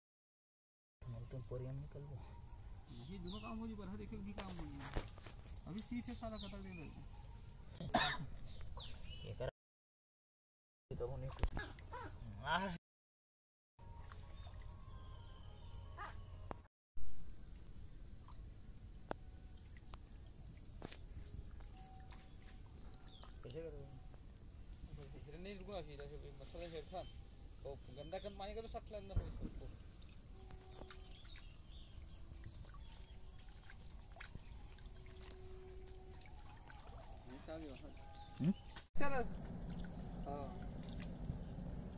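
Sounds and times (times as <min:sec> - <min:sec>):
small birds chirping: 0:01.1 - 0:09.5, 0:17.5 - 0:41.9
low rumble: 0:39.0 - 0:41.9.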